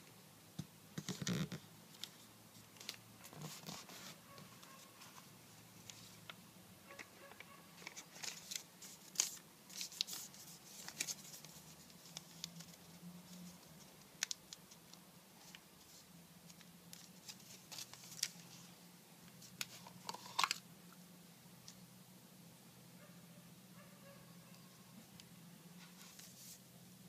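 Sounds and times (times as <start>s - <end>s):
paper being folded and creased: 1.0s - 6.4s, 7.8s - 18.7s, 25.8s - 26.6s.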